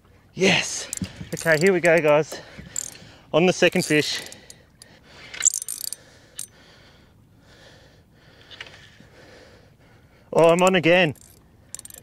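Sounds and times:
fishing reel gears whirring: 0.8s - 6.6s, 11.1s - 12.0s
sharp reel clicks: 5.4s - 6.0s, 11.1s - 12.0s.

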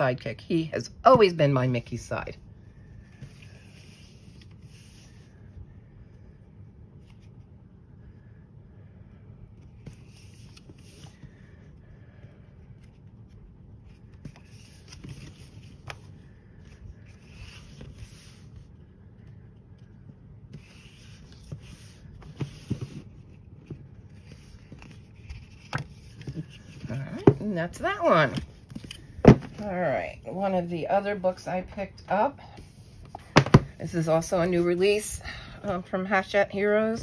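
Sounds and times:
paper pages rustling: 9.6s - 11.7s, 12.6s - 29.8s.

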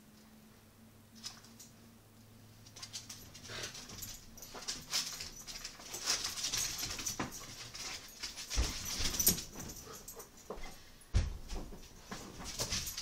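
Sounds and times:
dog claws clicking on floor: 1.2s - 1.8s, 2.6s - 10.6s.

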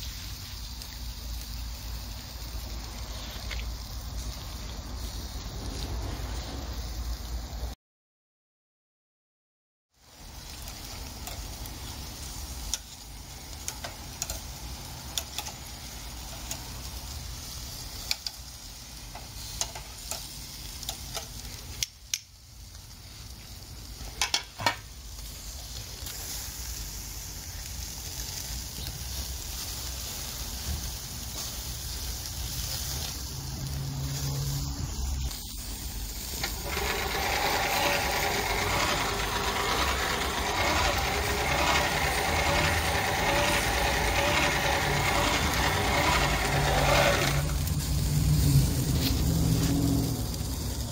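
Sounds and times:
meat sizzling on charcoal grill: 0.0s - 7.8s, 9.9s - 50.9s
hand-crank blower rushing air: 36.4s - 47.7s.

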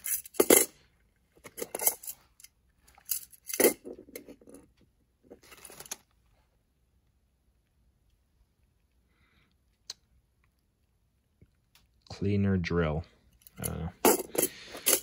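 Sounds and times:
small items clinking in drawer: 13.5s - 15.0s.

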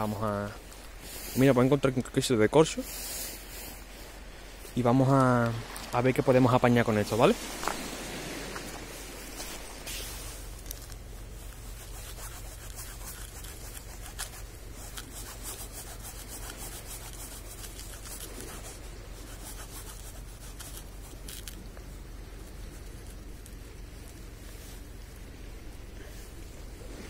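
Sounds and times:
knife scraping cork: 11.6s - 21.6s.

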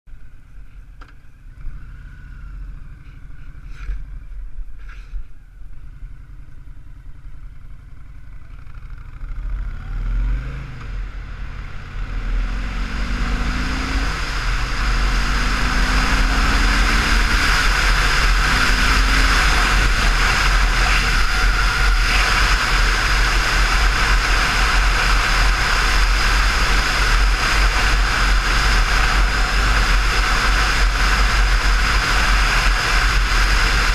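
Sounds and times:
motorcycle engine rumbling: 0.1s - 33.9s
wind rush on microphone: 13.4s - 33.9s.

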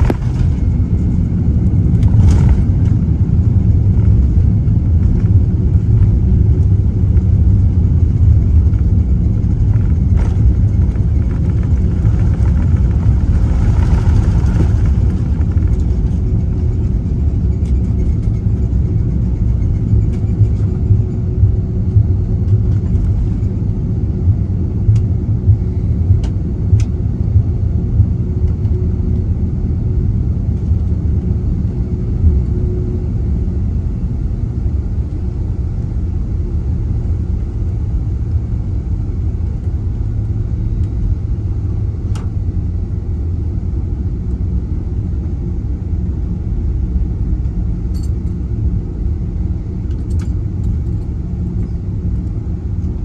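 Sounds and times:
rushing noise: 0.0s - 3.8s, 9.6s - 16.6s
cabin low rumble: 0.0s - 53.0s.

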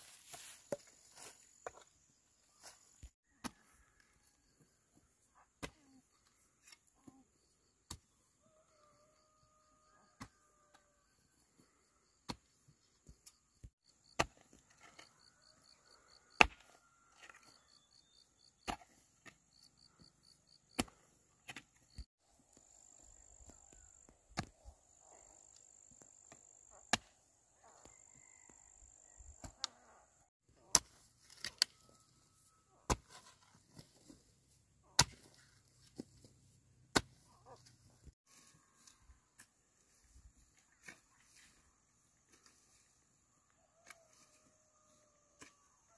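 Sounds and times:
sharp chopping strikes: 36.9s - 37.2s.

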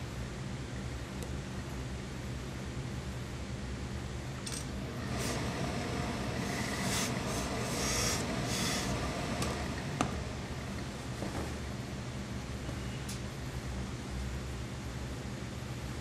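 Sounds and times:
steady low hum: 0.0s - 16.0s
steam iron hissing: 4.9s - 10.0s.

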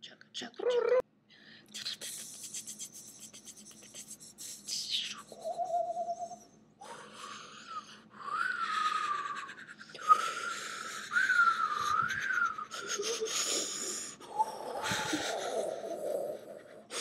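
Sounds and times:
person whistling wavering notes: 10.1s - 12.9s.

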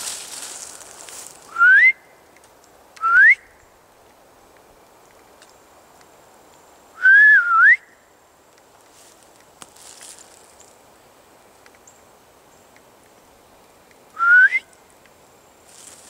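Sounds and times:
loud rising whistles: 1.5s - 2.0s, 7.0s - 8.0s, 14.2s - 14.7s.

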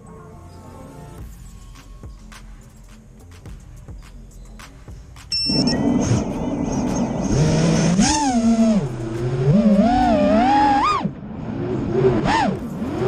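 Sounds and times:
drone motors whining: 5.4s - 13.0s.

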